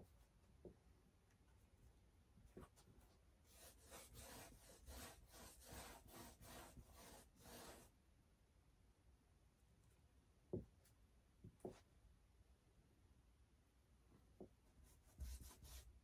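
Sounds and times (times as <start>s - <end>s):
brush scrubbing on canvas: 3.5s - 7.9s.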